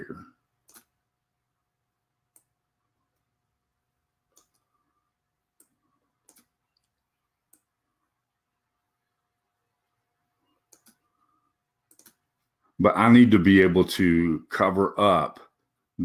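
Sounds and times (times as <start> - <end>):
computer mouse clicks: 0.6 - 1.0, 2.3 - 2.6, 4.3 - 4.7, 5.6 - 7.8, 10.6 - 11.1, 11.8 - 12.3.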